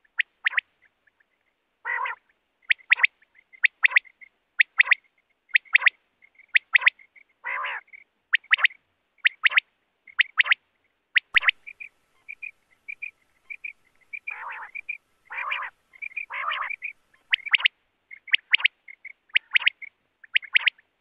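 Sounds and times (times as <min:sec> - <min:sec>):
quail calling sharp notes: 0:01.8 - 0:10.6, 0:11.2 - 0:20.9
rasping bird calls: 0:11.2 - 0:20.8.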